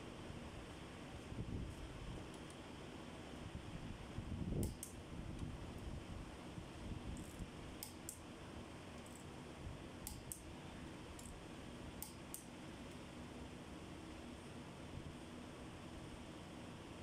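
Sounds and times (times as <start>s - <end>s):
faint steady hum: 0.0s - 17.0s
hand tool metal clicks: 4.6s - 5.0s, 10.0s - 10.4s.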